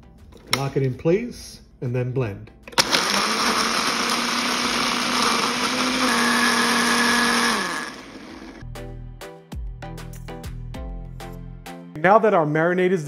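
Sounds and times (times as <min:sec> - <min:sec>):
background music: 0:00.0 - 0:13.0
blender motor running: 0:02.7 - 0:08.6.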